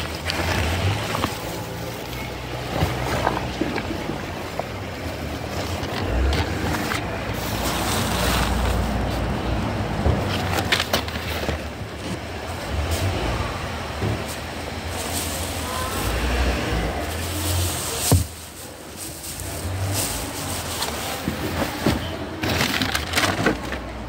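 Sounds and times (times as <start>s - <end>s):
plastic bags rustling: 0.0s - 24.0s
items knocking on car boot floor: 5.4s - 12.5s, 13.9s - 15.7s, 17.2s - 20.0s, 21.1s - 23.9s.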